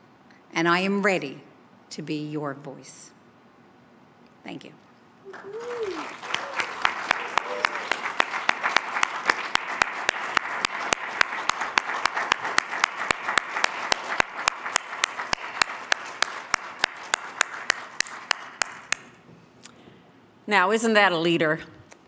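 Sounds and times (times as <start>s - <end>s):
crowd applause: 5.3s - 19.0s
sharp close claps: 5.4s - 19.2s.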